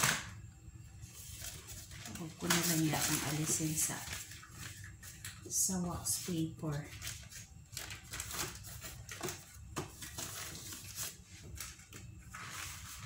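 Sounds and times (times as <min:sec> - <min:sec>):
wax paper rustling and crinkling: 0:01.0 - 0:13.0.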